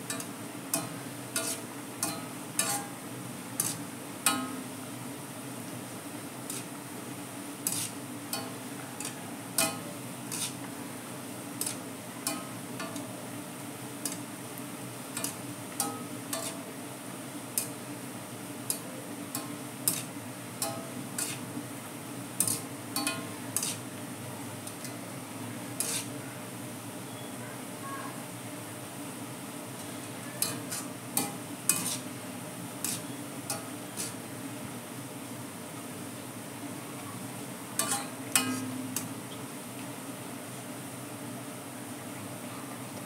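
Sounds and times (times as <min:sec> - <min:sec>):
onions sizzling in hot oil: 0:00.0 - 0:26.9, 0:28.2 - 0:40.9.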